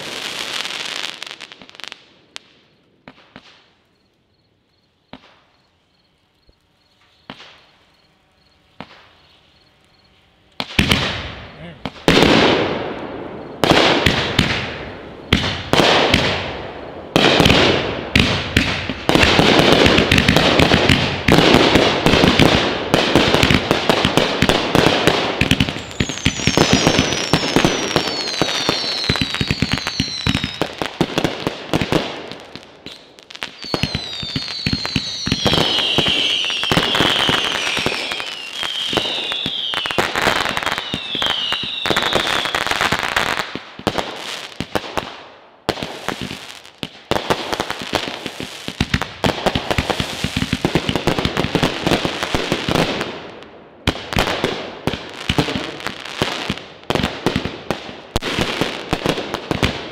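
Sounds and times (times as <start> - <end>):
crackling bangs: 0.0 - 3.9, 5.0 - 5.8, 6.5 - 8.1, 8.7 - 59.9
falling firework whistles: 0.0 - 16.6, 24.4 - 46.7
fireworks bursting: 0.0 - 59.9.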